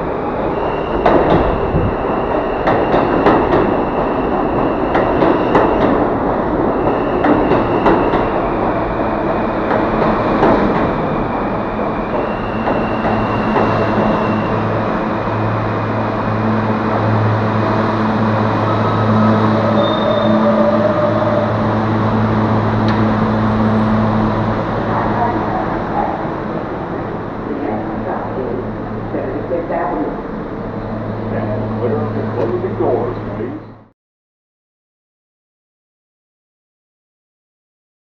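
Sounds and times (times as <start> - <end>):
steady low train hum: 0.0 - 33.9
train wheels clacking over rails: 2.6 - 6.2, 6.8 - 14.5
high-pitched wheel squeals: 18.6 - 21.6.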